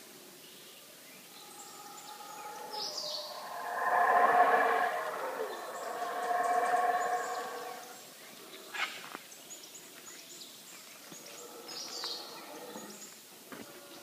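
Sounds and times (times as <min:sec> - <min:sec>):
howler monkeys roaring: 0:01.3 - 0:08.1.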